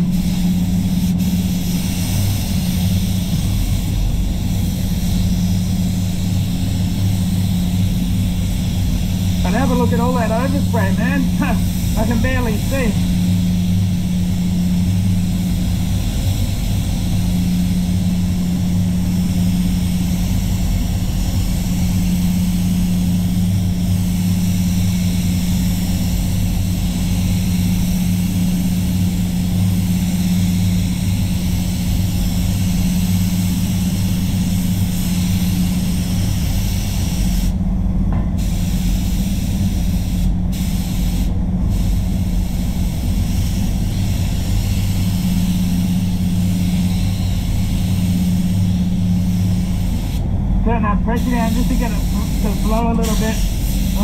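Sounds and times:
spray gun hissing: 0:00.0 - 0:37.6, 0:38.4 - 0:54.0
spray booth low hum: 0:00.0 - 0:54.0.

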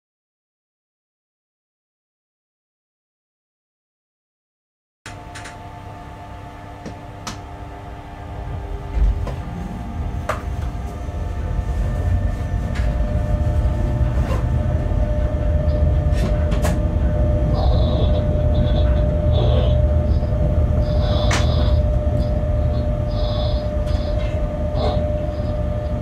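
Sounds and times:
locomotive rumble: 0:05.1 - 0:26.0
whining tones: 0:05.1 - 0:26.0.

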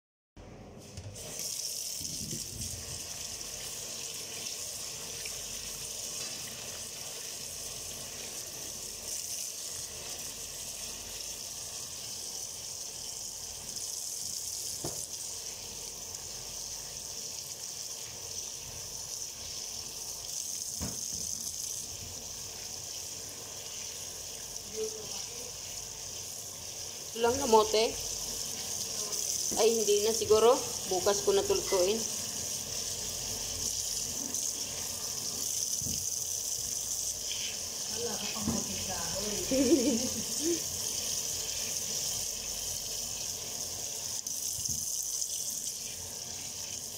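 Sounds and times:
tap running into a steel sink: 0:14.8 - 0:15.2, 0:20.8 - 0:21.4, 0:35.7 - 0:36.1, 0:38.4 - 0:38.8, 0:44.5 - 0:45.0.

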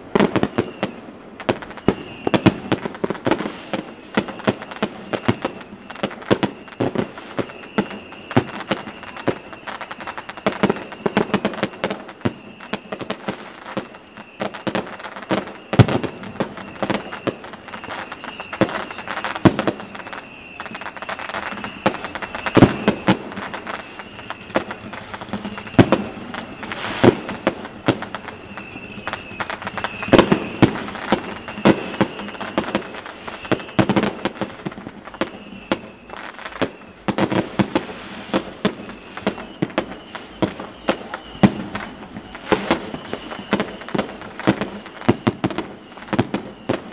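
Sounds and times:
fireworks bangs and crackles: 0:00.0 - 0:46.9
heavy firework booms: 0:00.0 - 0:46.9
faint steady high tone: 0:03.8 - 0:37.1.

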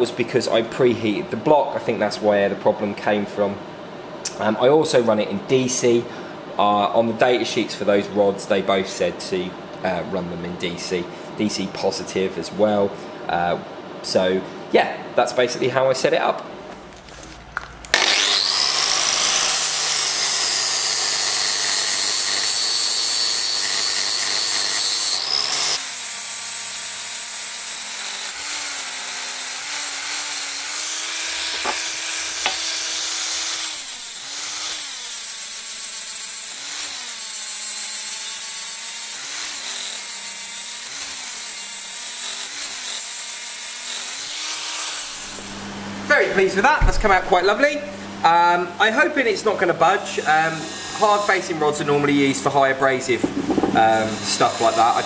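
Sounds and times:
angle grinder grinding steel: 0:17.9 - 0:45.8, 0:46.8 - 0:48.2, 0:49.8 - 0:52.0, 0:53.2 - 0:55.0.

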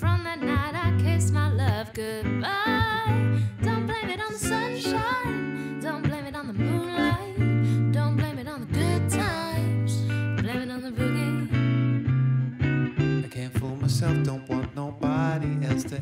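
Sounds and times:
electric guitar: 0:00.0 - 0:16.0
man and woman singing: 0:01.7 - 0:11.5, 0:13.3 - 0:16.0.

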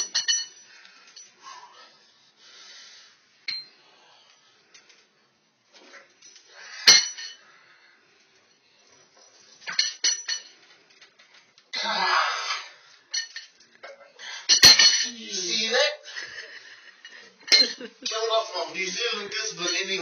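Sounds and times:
plates and chain rattling: 0:00.0 - 0:01.4, 0:08.8 - 0:11.3, 0:17.0 - 0:18.3.

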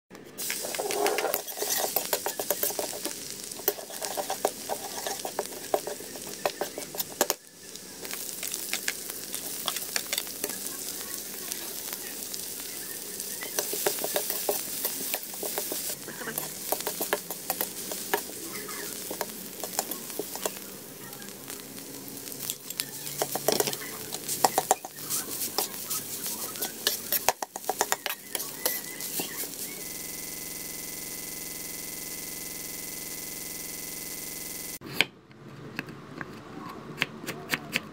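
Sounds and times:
spatula scraping a pan: 0:00.4 - 0:10.6, 0:13.3 - 0:20.6, 0:22.2 - 0:29.8
oil sizzling in a wok: 0:00.4 - 0:34.8.

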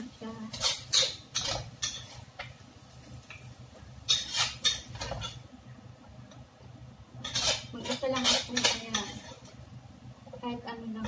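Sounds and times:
metal spatula scraping a wok: 0:00.4 - 0:02.4, 0:04.0 - 0:05.4, 0:07.2 - 0:09.6.

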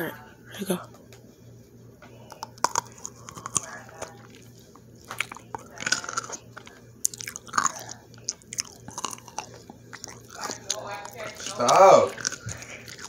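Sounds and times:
person chewing crunchy pickle: 0:02.2 - 0:13.0
wet mouth smacking: 0:02.3 - 0:04.4.

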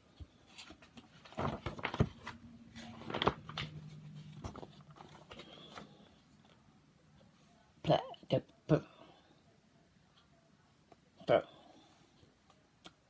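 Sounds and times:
pages rustling: 0:00.2 - 0:06.2
book handling taps and clicks: 0:00.6 - 0:05.9.

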